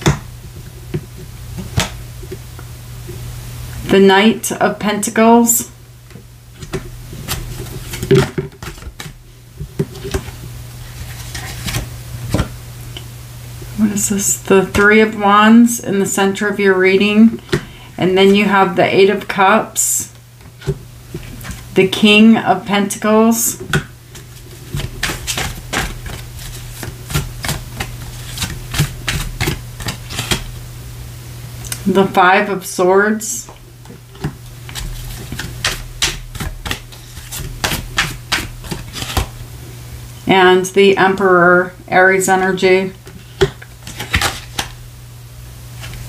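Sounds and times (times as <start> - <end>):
steady low hum: 0.0 - 46.0
cards tapping and clicking on desk: 24.7 - 30.4, 34.2 - 39.3.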